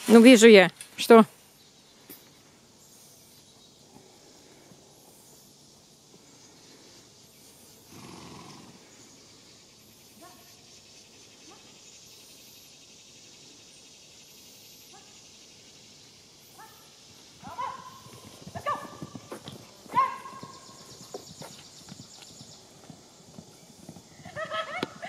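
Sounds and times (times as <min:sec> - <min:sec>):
faint insect buzz: 0:00.0 - 0:25.0
hooves galloping: 0:17.1 - 0:25.0.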